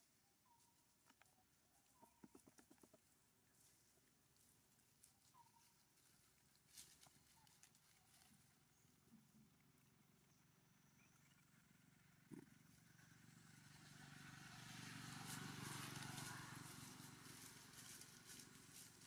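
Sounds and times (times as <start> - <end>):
engine passing by: 10.8 - 19.0.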